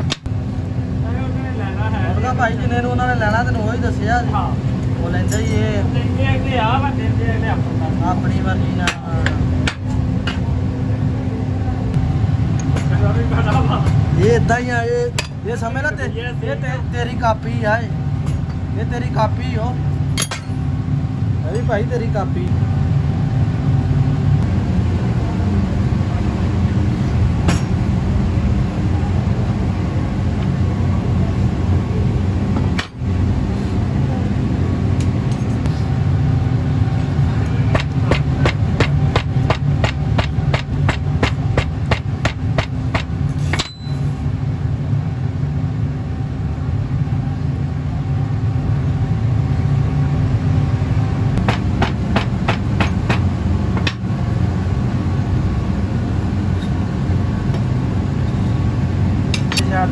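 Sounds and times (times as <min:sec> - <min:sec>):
low motor hum: 0:00.0 - 0:59.9.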